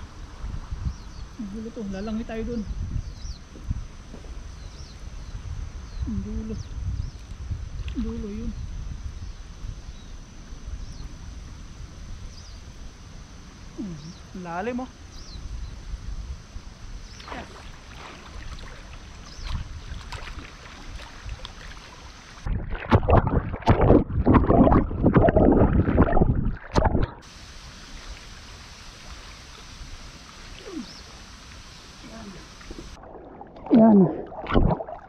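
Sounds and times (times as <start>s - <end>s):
low running water: 0.0s - 35.0s
water splashing and sloshing: 17.1s - 35.0s.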